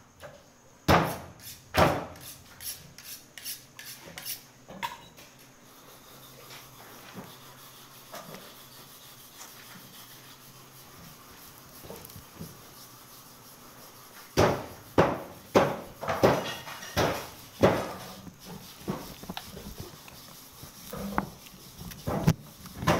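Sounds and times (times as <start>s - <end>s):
meat thumping and rubbing on table: 14.2s - 22.9s.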